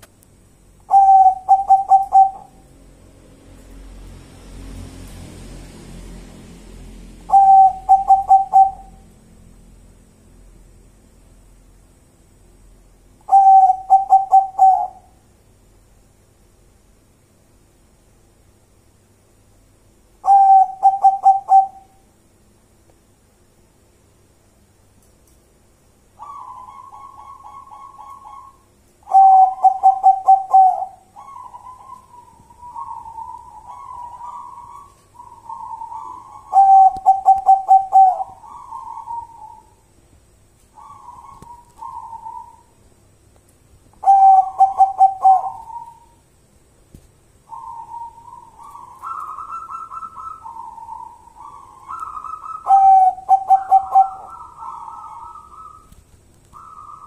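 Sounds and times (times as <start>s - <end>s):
dove cooing: 0.9s - 2.7s, 7.3s - 9.0s, 13.2s - 15.2s, 20.2s - 22.0s, 26.2s - 39.8s, 40.8s - 42.7s, 44.0s - 46.2s, 47.5s - 57.0s.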